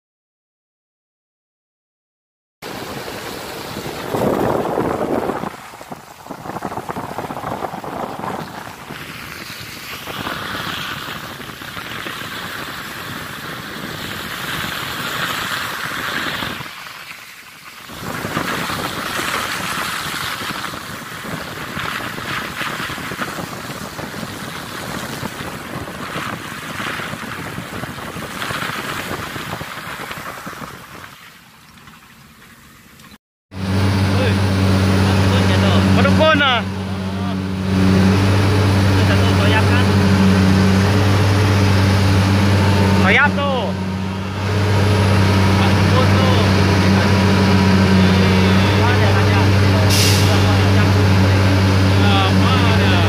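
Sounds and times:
tyres hissing on wet road: 2.6s - 32.4s, 33.6s - 53.0s
wind buffeting microphone: 2.7s - 16.8s, 17.9s - 31.2s.

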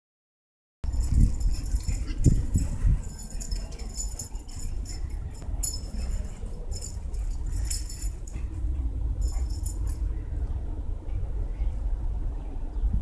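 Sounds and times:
wind rumble on microphone: 0.8s - 13.0s
light metal jingling: 0.9s - 10.3s.

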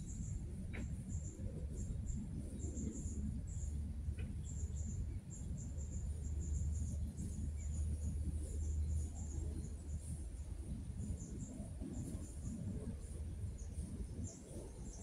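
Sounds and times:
insects chirping: 0.0s - 10.1s
steady low rumble: 0.0s - 15.0s.

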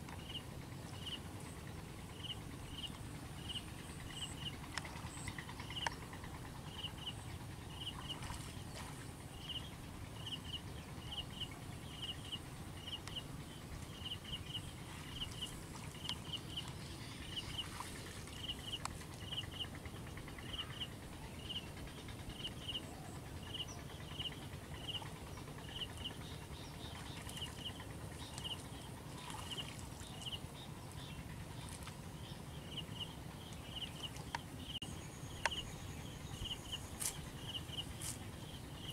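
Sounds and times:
steady low rumble: 0.0s - 38.9s
faint scattered clicks: 33.5s - 34.5s.

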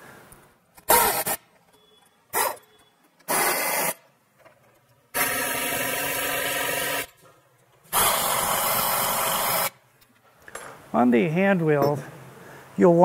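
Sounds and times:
pneumatic tool driving bolts: 0.8s - 1.4s, 2.3s - 4.0s, 5.1s - 7.2s, 7.9s - 9.8s.

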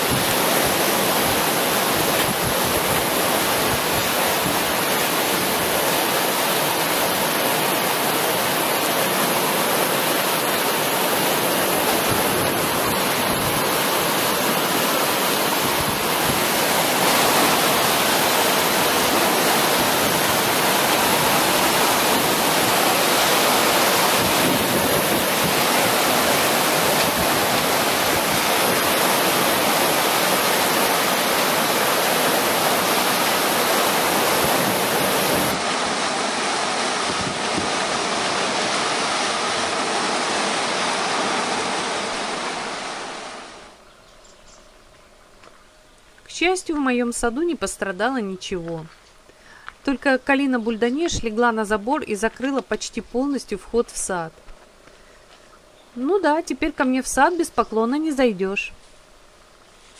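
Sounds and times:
torrential rain: 0.0s - 43.8s
wind gusting through trees: 0.0s - 59.9s.

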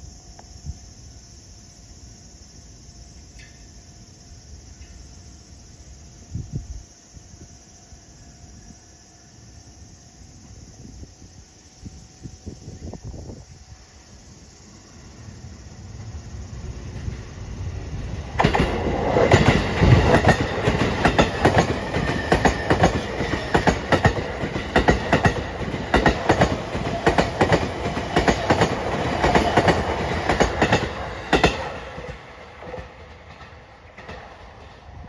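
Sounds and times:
electric train passing: 0.0s - 35.0s
wheels clicking over rail joints: 18.3s - 34.9s.

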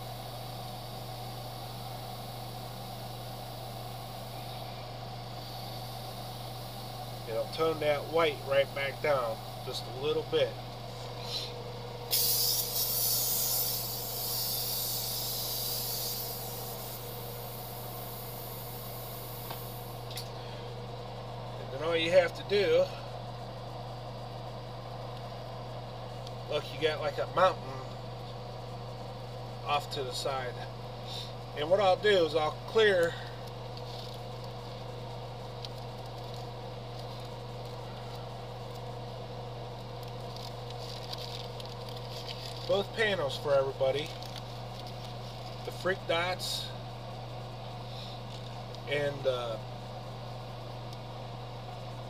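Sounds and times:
airbrush spraying hiss: 0.0s - 10.0s, 10.9s - 20.1s
small electric motor humming: 0.0s - 21.5s, 28.7s - 51.0s.

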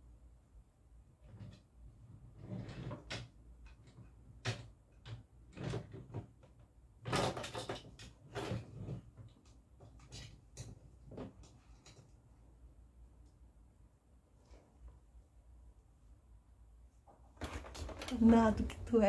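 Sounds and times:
drawer knocking and rattling: 4.0s - 11.6s, 17.4s - 18.8s.

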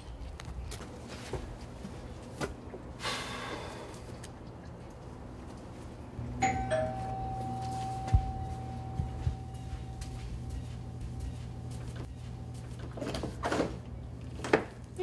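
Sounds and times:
two-note doorbell chime: 6.2s - 11.4s.

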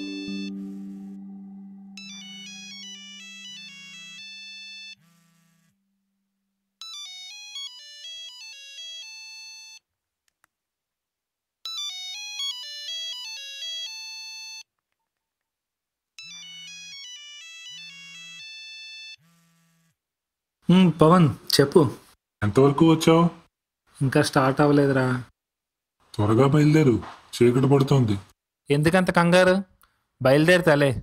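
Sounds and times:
phone melodic ringtone: 0.0s - 5.0s, 16.2s - 19.0s.

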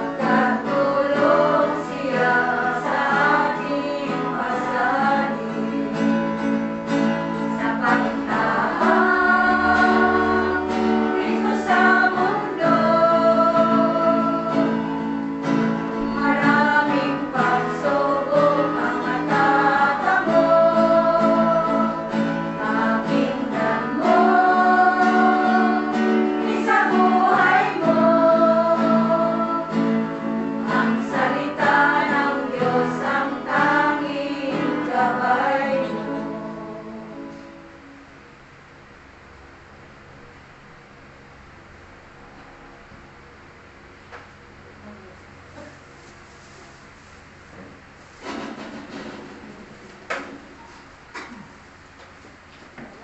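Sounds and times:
voices singing held notes: 0.0s - 6.2s, 7.4s - 37.6s
guitar: 0.0s - 53.0s.

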